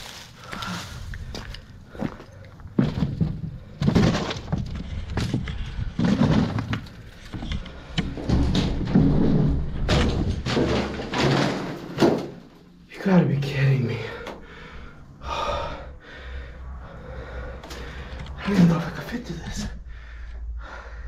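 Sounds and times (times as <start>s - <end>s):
knocks and scrapes on debris: 2.8s - 12.6s.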